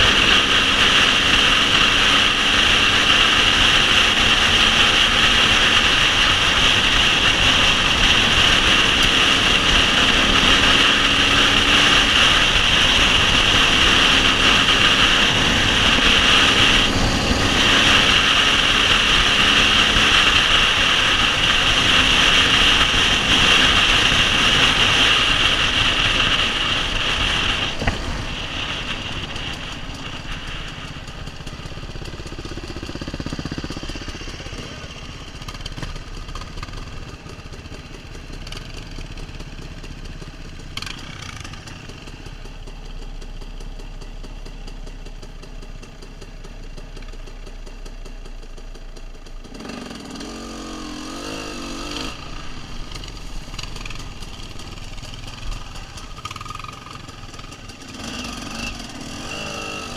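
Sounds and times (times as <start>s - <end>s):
dirt bike engine running: 0.0s - 59.9s
engine blips: 51.5s - 59.9s.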